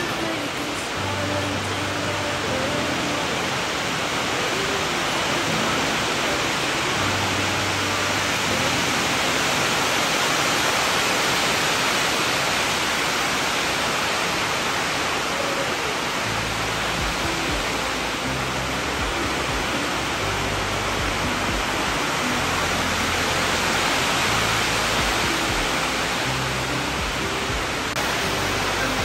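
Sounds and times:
loud rushing hiss: 0.0 - 29.0
faint low musical notes: 16.2 - 29.0.

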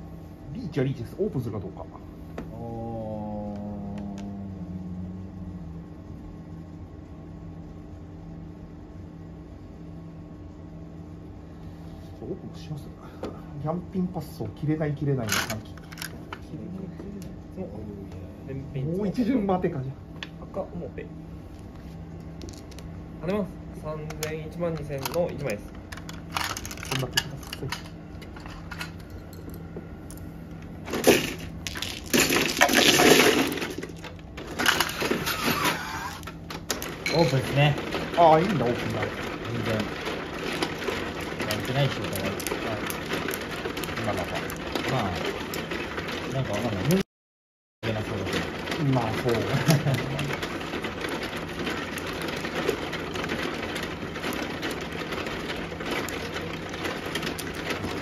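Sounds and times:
low mechanical hum: 0.0 - 47.0, 47.8 - 58.0
mahjong tiles clattering: 15.2 - 16.4, 24.1 - 29.4, 30.9 - 46.9, 47.9 - 58.0.

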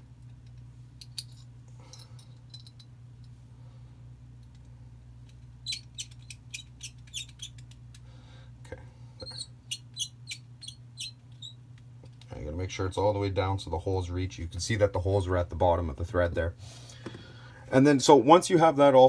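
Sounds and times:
steady low hum: 0.0 - 19.0
small metal parts clicking: 0.2 - 3.4, 4.4 - 8.0.

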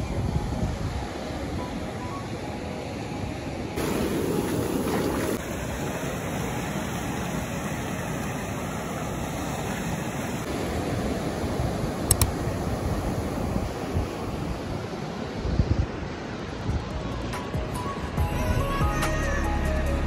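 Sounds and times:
ocean waves breaking on rocks: 3.7 - 18.2.

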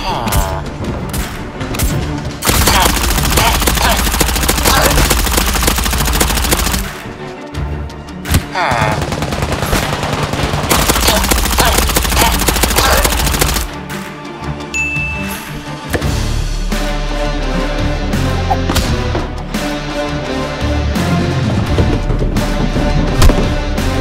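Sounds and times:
background music: 0.0 - 24.0
gel blaster firing rapid bursts: 2.4 - 6.9, 10.1 - 13.7.

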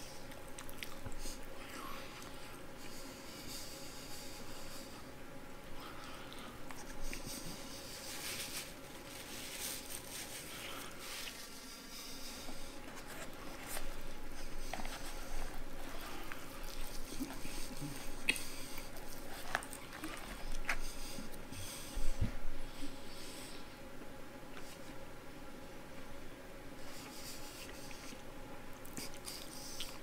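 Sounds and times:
chewing fried chicken: 0.0 - 3.0, 12.4 - 21.5, 27.1 - 30.0.

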